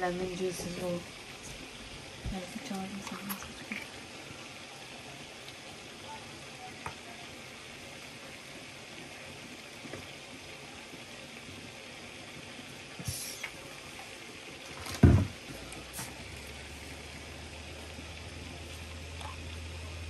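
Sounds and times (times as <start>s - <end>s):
food mixture being stirred: 2.7s - 4.4s.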